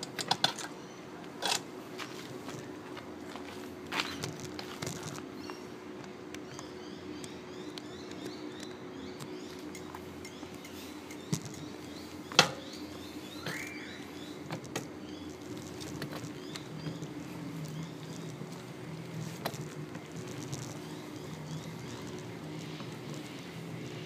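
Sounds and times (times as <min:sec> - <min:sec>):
bicycle rattles and knocks: 0:00.0 - 0:00.7, 0:04.0 - 0:05.3, 0:09.2 - 0:12.8, 0:14.4 - 0:24.0
birds chirping: 0:00.0 - 0:24.0
steady hum: 0:00.0 - 0:24.0.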